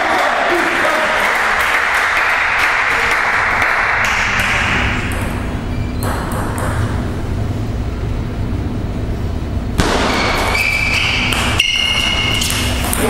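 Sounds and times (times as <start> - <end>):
spectators applauding: 0.0 - 5.1
table tennis ball bouncing: 4.1 - 7.2, 9.8 - 13.0.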